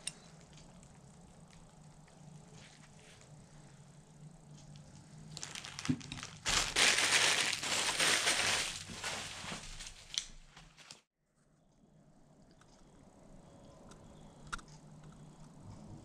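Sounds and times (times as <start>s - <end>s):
plastic wrapping crinkling: 5.3s - 11.1s.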